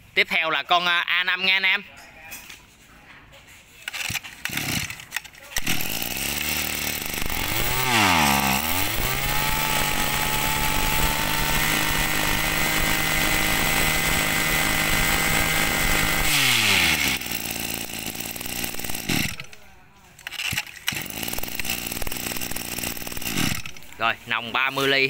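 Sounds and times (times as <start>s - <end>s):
two-stroke brush cutter engine: 3.8s - 25.0s.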